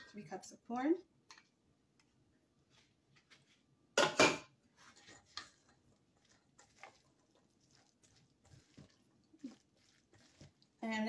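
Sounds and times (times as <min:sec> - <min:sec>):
dishware clattering knocks: 0:04.0 - 0:04.5
spatula mixing batter: 0:04.6 - 0:11.0.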